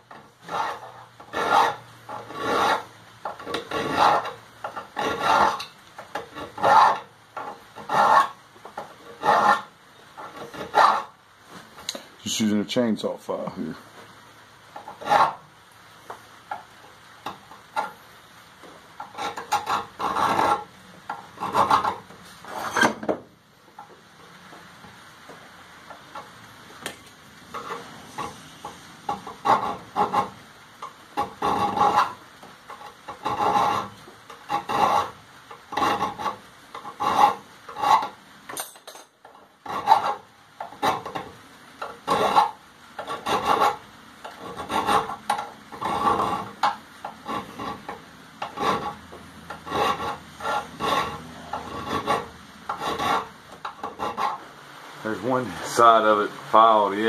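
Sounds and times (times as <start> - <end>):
file rasping on steel: 0.1 - 11.2, 14.8 - 15.4, 19.0 - 23.0, 27.5 - 38.2, 39.6 - 54.5.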